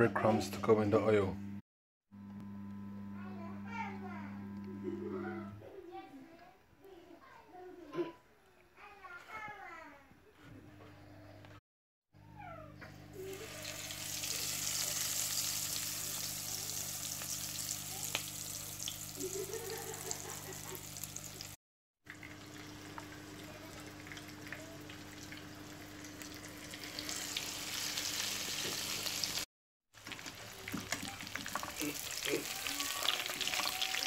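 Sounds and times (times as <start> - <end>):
chicken frying in hot oil: 13.2 - 34.0.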